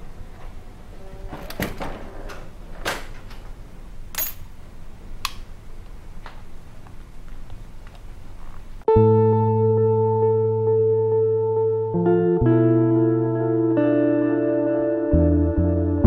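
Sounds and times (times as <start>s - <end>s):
door and keys handled: 1.4s - 4.6s.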